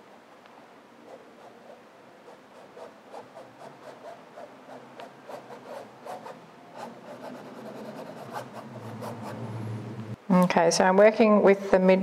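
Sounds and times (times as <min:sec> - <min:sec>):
paintbrush scrubbing paint: 0:01.1 - 0:09.5.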